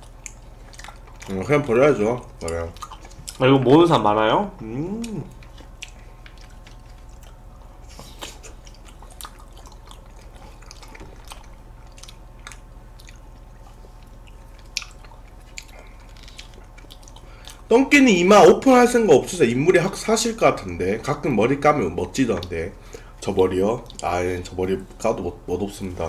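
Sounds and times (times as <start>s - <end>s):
wet mouth eating sounds: 0.0s - 3.9s, 4.5s - 17.7s
faint steady hum: 0.0s - 26.0s.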